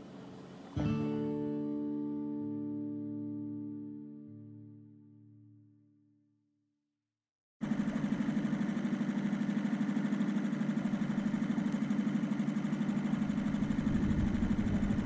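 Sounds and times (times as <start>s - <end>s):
outboard motor puttering: 7.6s - 15.0s.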